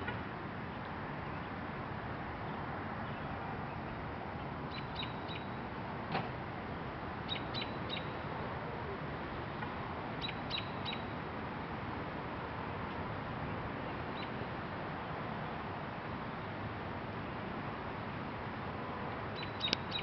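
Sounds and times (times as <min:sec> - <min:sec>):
small bird chirping: 0:04.7 - 0:05.5, 0:07.3 - 0:08.2, 0:10.2 - 0:11.1, 0:19.4 - 0:20.0.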